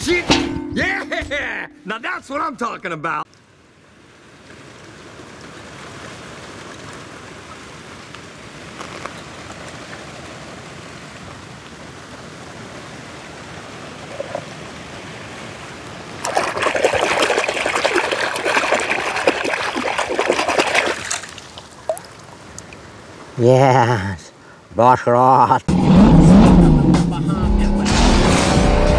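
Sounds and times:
water splashing and gurgling: 12.9 - 23.0
shallow water trickling: 16.2 - 23.0.

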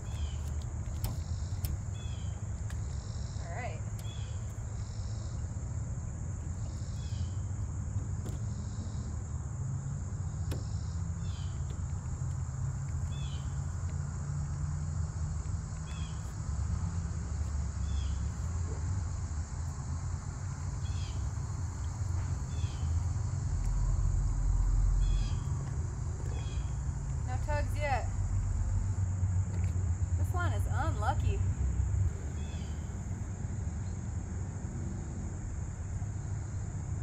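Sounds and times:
bird chirps: 0.0 - 5.5
insect chorus: 0.0 - 37.0
low rumble: 22.3 - 30.2.

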